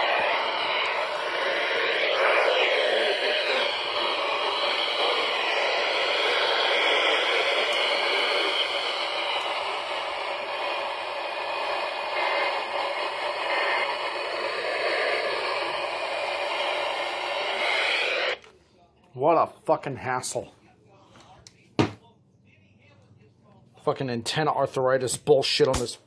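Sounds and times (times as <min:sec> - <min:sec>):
radio static hiss: 0:00.0 - 0:18.4.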